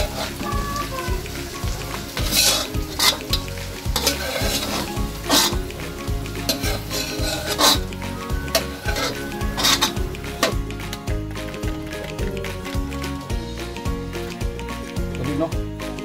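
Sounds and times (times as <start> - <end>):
metal turner scraping a wok: 0.0 - 0.4, 1.4 - 5.7, 6.4 - 10.6
onions sizzling in butter: 0.0 - 11.8.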